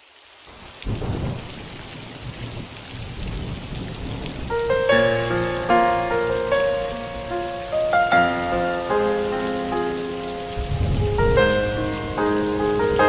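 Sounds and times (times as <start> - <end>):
rain falling: 0.0 - 13.0
thunder rumble: 0.5 - 13.0
melody notes: 4.5 - 13.0.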